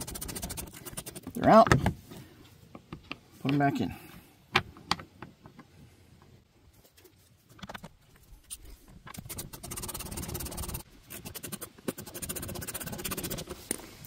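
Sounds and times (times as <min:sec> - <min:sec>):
ratchet pawl clicking rapidly: 0:09.3 - 0:13.4.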